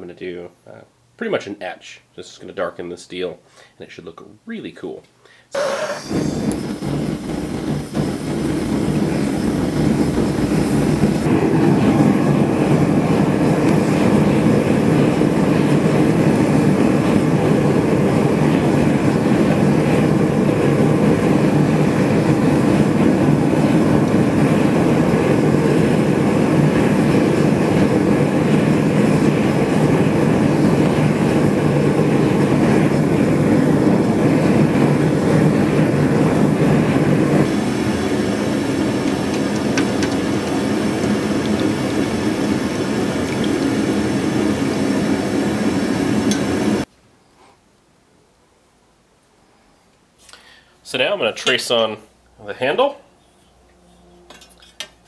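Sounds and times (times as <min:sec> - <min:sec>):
gas forge burner rushing: 0:05.6 - 0:46.9.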